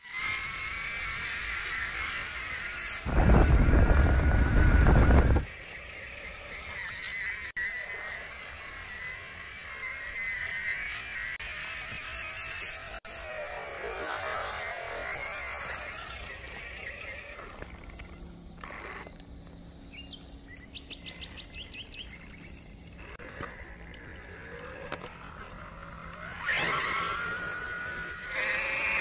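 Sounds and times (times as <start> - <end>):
electric motor whining: 0.0 - 20.3, 20.9 - 29.0
bird chirping: 5.8 - 9.1, 14.6 - 25.0.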